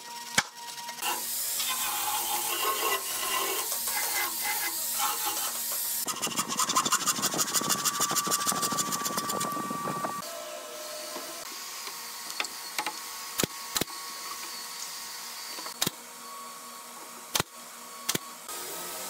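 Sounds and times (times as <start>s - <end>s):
electric sander on hardwood: 1.0s - 12.0s, 18.5s - 19.0s.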